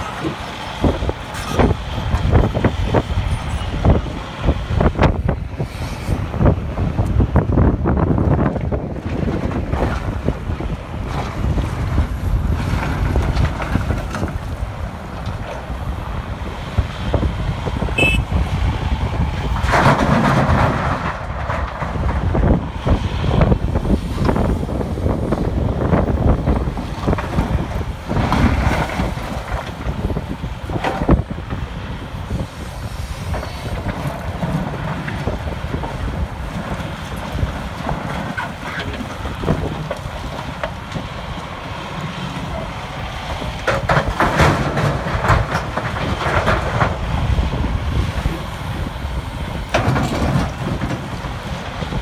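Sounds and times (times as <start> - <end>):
low engine rumble: 0.0 - 52.0
wind buffeting microphone: 0.0 - 52.0
clunks of concrete and steel: 43.5 - 47.0, 49.6 - 52.0.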